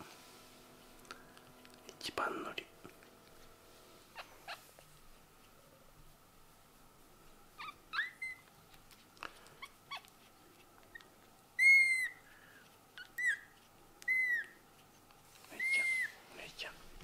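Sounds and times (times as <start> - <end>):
kitten mewing: 15.6 - 16.2.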